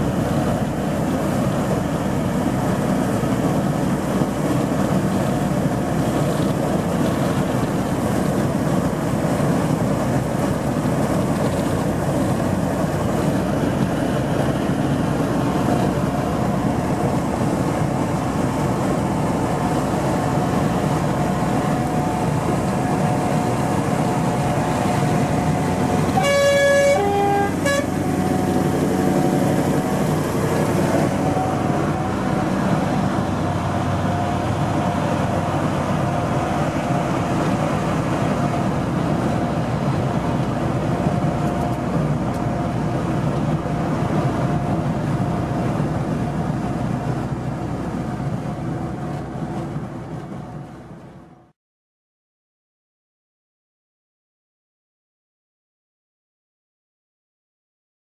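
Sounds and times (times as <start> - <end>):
truck engine running: 0.0 - 51.2
road noise: 0.0 - 51.5
two-note truck horn: 26.1 - 30.0.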